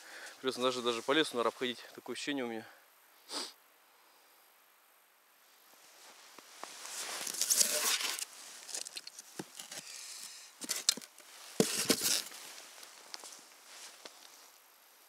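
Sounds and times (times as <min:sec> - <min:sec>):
snow and ice crunching underfoot: 0:06.0 - 0:10.0, 0:10.7 - 0:14.4.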